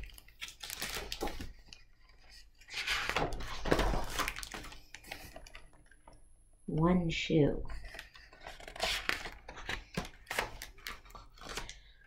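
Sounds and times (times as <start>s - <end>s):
book pages rustling: 0.0s - 5.8s, 7.7s - 12.0s.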